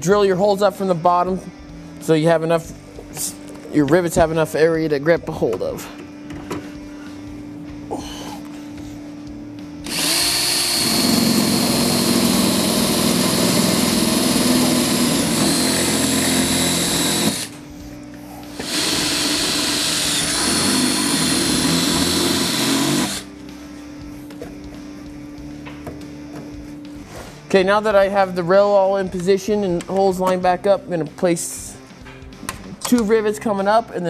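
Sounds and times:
power drill boring through metal: 0:09.8 - 0:17.6, 0:18.5 - 0:23.3.

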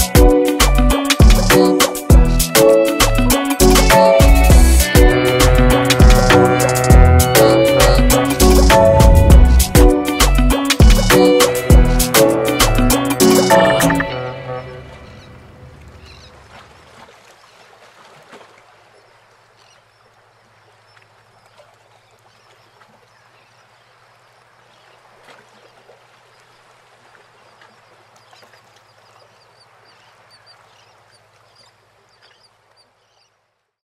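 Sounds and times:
faint bird calls: 0:15.0 - 0:16.6, 0:19.0 - 0:33.4.

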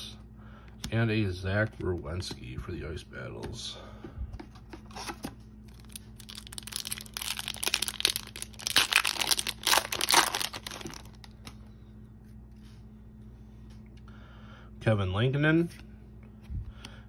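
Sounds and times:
card pack wrapper tearing: 0:05.7 - 0:11.5.

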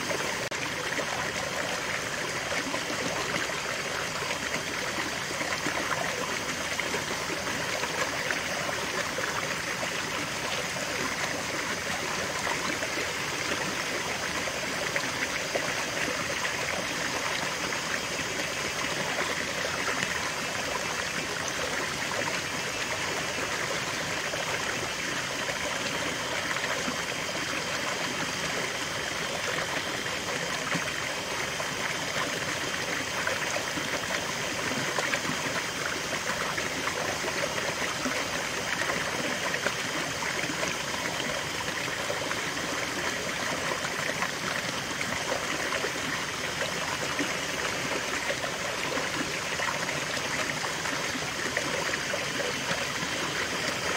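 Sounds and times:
stream splashing over rocks: 0:00.0 - 0:53.9.

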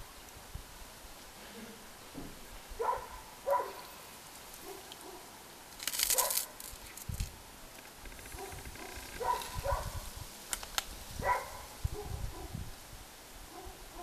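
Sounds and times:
dog barking: 0:02.8 - 0:03.9, 0:04.6 - 0:05.3, 0:06.1 - 0:06.5, 0:08.3 - 0:10.0, 0:11.2 - 0:12.6, 0:13.5 - 0:14.0.

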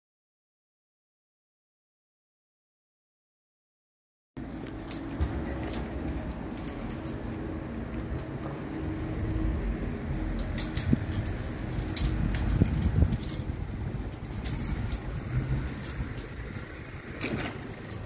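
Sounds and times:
steady low rumble: 0:04.4 - 0:18.0.

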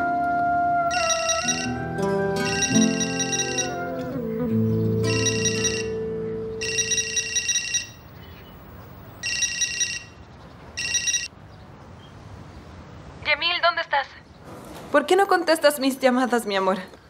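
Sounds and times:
mobile phone ringtone trill: 0:00.9 - 0:04.3, 0:05.0 - 0:08.0, 0:09.2 - 0:10.2, 0:10.8 - 0:11.3.

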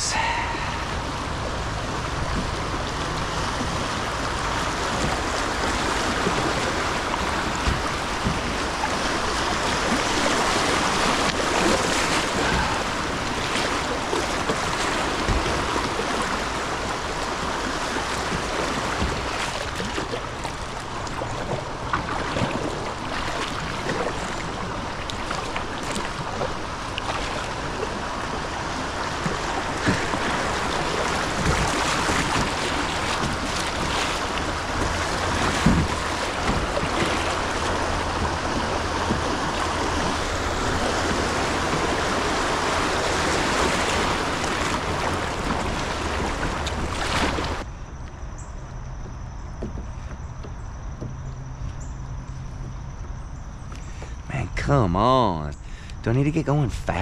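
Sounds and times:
river water rushing: 0:00.0 - 0:47.7
small knocks on kayak: 0:07.5 - 0:08.8, 0:31.2 - 0:40.2, 0:49.0 - 0:51.8.

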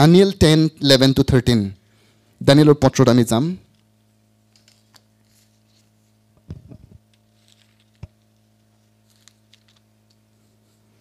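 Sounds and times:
low electrical hum: 0:00.0 - 0:11.0
pages turning: 0:04.5 - 0:06.1, 0:07.2 - 0:09.9.

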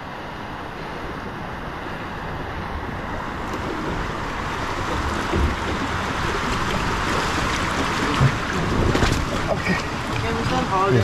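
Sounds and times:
water rushing down a slide: 0:03.4 - 0:11.0.

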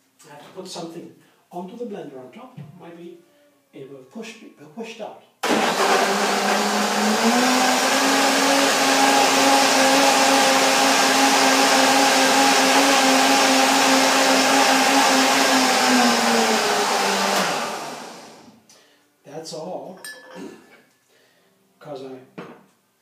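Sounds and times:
blender motor running: 0:05.4 - 0:18.6.

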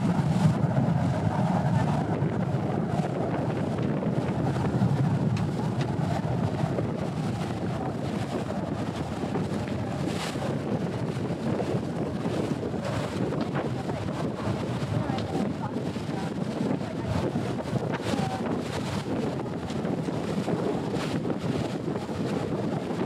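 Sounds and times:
boat engine rumbling: 0:00.0 - 0:23.0
water rushing past hull: 0:00.0 - 0:23.0
wind buffeting microphone: 0:00.0 - 0:23.0.

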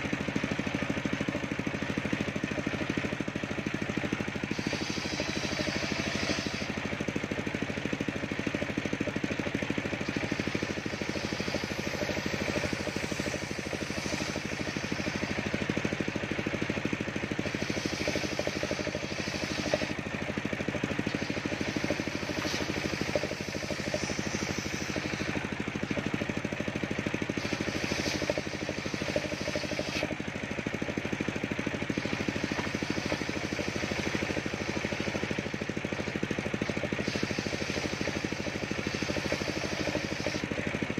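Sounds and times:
circular saw ripping wood: 0:04.4 - 0:06.8, 0:10.0 - 0:15.5, 0:17.4 - 0:20.0, 0:20.9 - 0:25.9, 0:27.3 - 0:30.2, 0:32.0 - 0:35.5, 0:36.6 - 0:40.5.

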